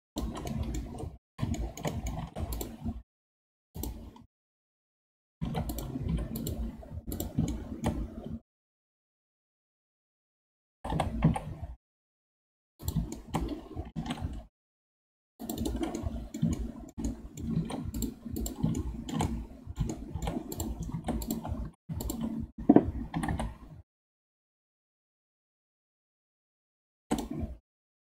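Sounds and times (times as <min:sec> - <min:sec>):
mouse and keyboard clicking: 0:00.2 - 0:03.0, 0:03.8 - 0:04.3, 0:05.4 - 0:08.3, 0:12.8 - 0:14.5, 0:15.4 - 0:23.8, 0:27.1 - 0:27.4.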